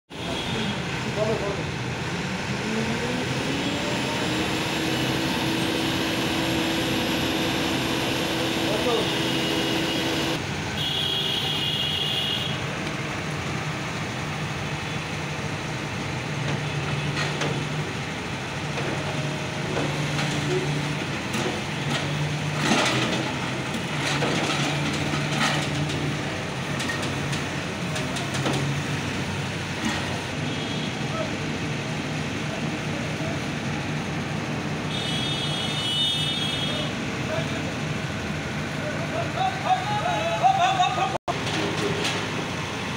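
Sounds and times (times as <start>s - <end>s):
excavator diesel engine under load: 0.8s - 10.8s, 12.6s - 30.4s, 36.9s - 42.9s
bucket clanking and scraping: 19.8s - 28.7s.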